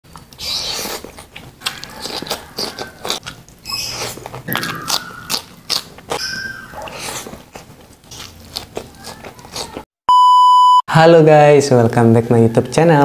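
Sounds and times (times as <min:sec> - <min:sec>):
chewing rice: 0:00.1 - 0:09.9
crunching cucumber bites: 0:00.1 - 0:09.9
wet mouth noises: 0:00.1 - 0:09.9.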